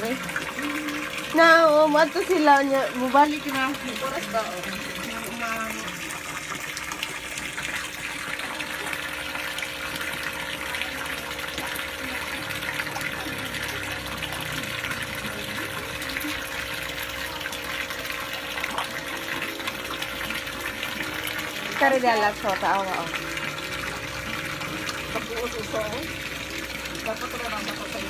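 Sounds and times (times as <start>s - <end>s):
water pouring into pond: 0.0s - 28.0s.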